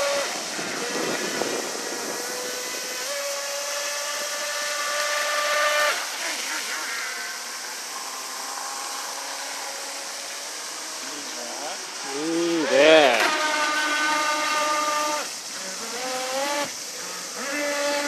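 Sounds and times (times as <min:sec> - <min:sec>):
electric motor whining: 0:00.0 - 0:18.0
hiss of water spray: 0:00.0 - 0:18.0.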